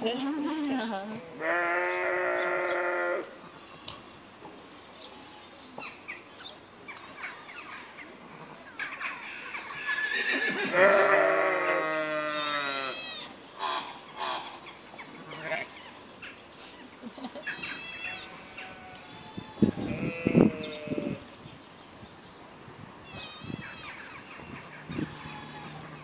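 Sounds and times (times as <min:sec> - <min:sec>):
sheep bleating: 0:01.1 - 0:03.3, 0:10.6 - 0:13.3, 0:15.3 - 0:15.7, 0:17.8 - 0:21.2.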